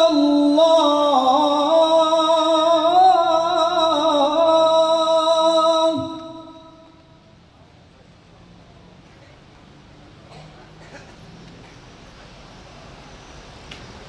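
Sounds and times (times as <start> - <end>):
man reciting melodically: 0.0 - 7.2.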